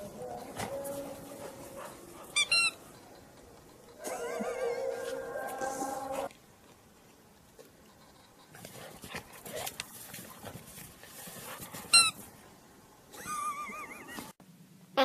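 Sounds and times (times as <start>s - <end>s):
rubber ball toy squeaking: 2.4s - 2.8s.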